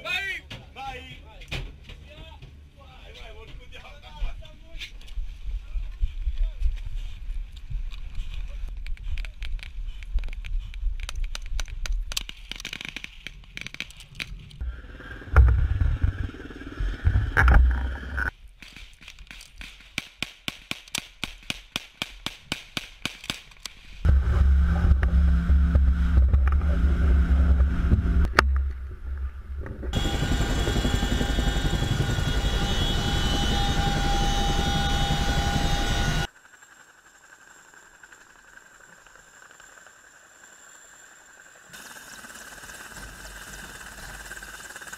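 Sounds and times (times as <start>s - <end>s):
helicopter engine and rotor noise: 14.6s - 18.3s, 24.3s - 28.4s, 29.9s - 44.9s
loud low rumble: 14.6s - 18.3s, 24.1s - 30.1s.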